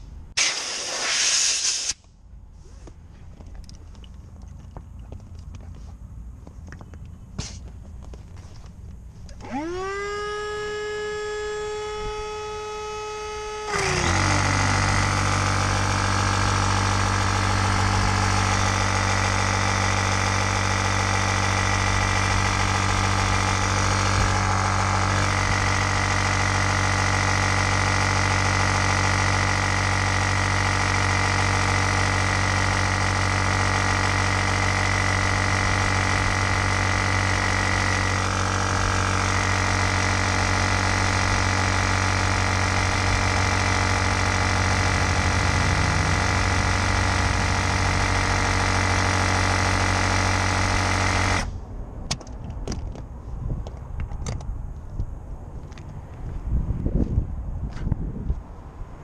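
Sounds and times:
electric air pump humming: 9.4 - 51.5.

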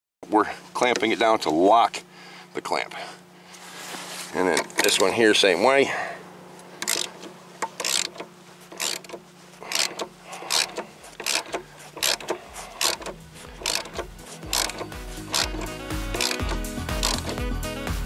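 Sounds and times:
socket ratchet clicking: 6.8 - 17.5.

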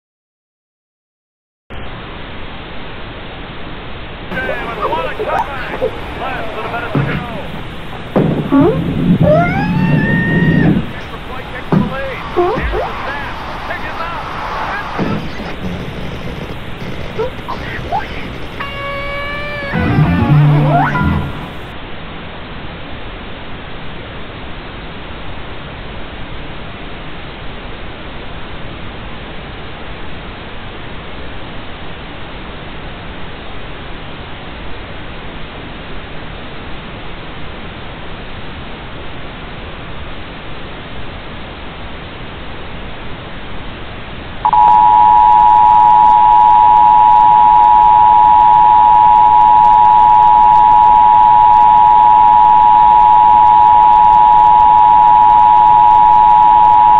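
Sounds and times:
broadcast static hiss: 1.7 - 56.9
two-tone emergency alert signal: 4.4 - 13.0, 17.2 - 21.7, 44.5 - 56.9.

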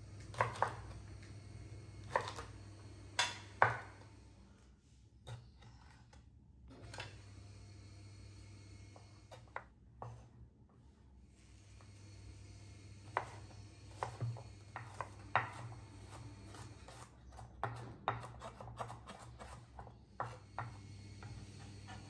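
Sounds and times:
knife chopping on wooden board: 0.3 - 0.9, 2.0 - 2.5, 3.2 - 4.0, 13.1 - 22.0.

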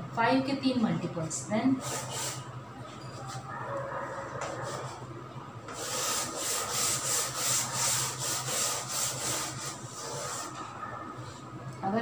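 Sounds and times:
duster scraping chalkboard: 1.8 - 2.5, 5.7 - 10.8.

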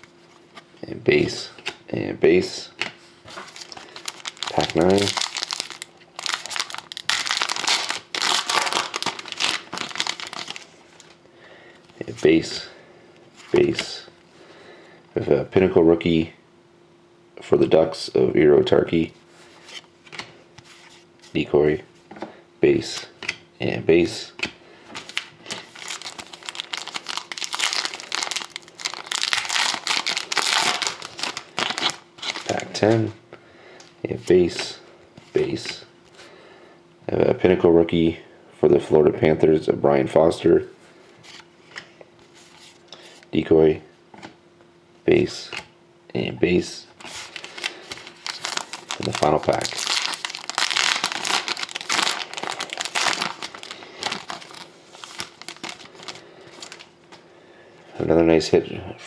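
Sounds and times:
foil wrapper tearing and crinkling: 3.5 - 11.2, 25.0 - 32.6, 47.0 - 56.9.

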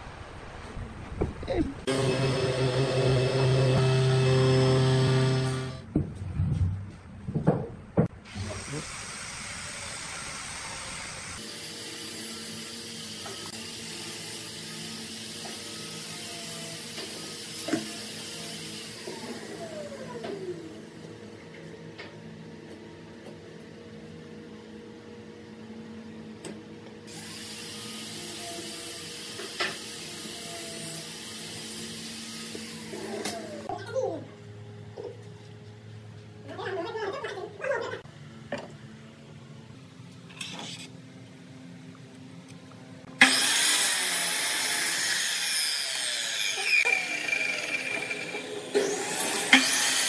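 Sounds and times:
motor-like hum and hiss: 8.1 - 36.7.

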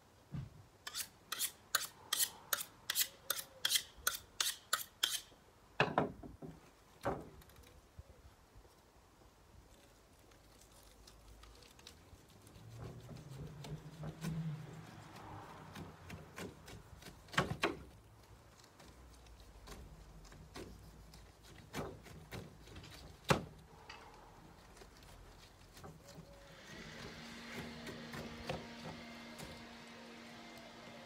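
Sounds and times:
sharp knocks and scrapes: 0.3 - 7.7, 10.5 - 30.8
knife slicing pineapple rind: 24.6 - 30.7.

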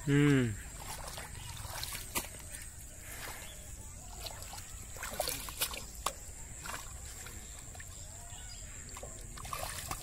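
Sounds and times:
muddy water splashing: 0.0 - 10.0.

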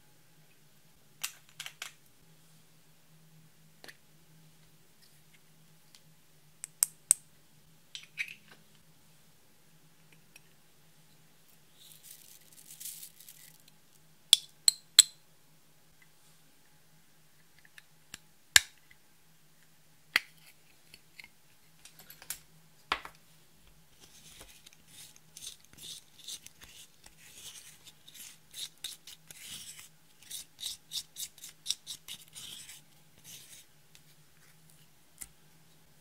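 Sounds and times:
plastic spatula scraping: 24.0 - 33.7.

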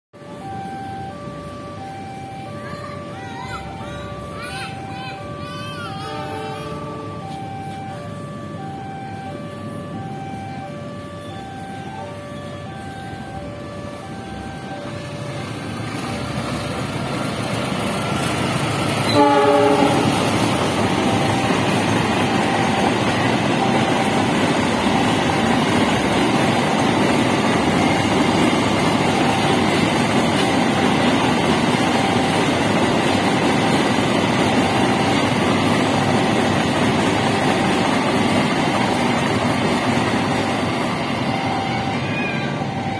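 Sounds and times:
crossing warning bell ringing: 0.2 - 42.9
freight train rumbling: 0.2 - 42.9
train horn blast: 19.0 - 20.5.

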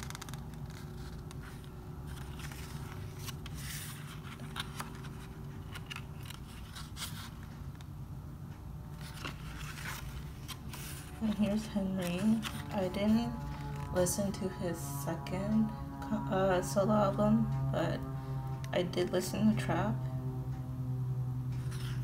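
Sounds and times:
pages rustling and turning: 0.0 - 7.8, 8.9 - 14.0, 21.5 - 22.0.

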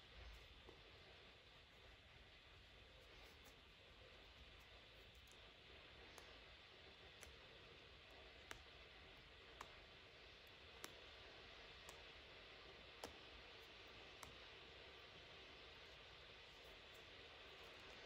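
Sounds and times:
low steady hiss: 0.0 - 18.0
seam ripper snapping stitches: 4.6 - 15.2.

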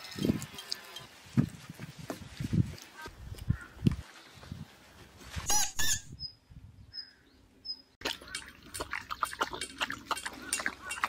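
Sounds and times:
birds chirping: 5.5 - 11.0
dog licking food from steel bowl: 8.0 - 11.0.

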